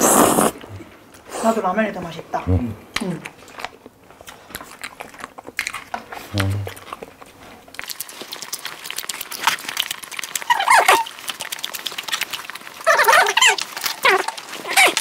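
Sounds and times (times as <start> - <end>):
person chewing: 2.9 - 15.0
dog whining: 10.5 - 11.1, 12.8 - 15.0.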